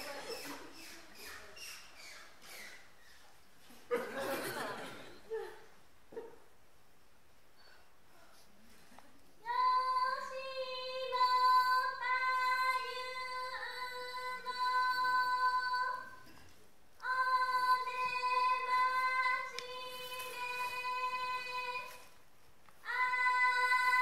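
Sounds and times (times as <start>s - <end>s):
high singing voice: 9.4s - 16.4s, 17.0s - 22.1s, 22.8s - 24.0s.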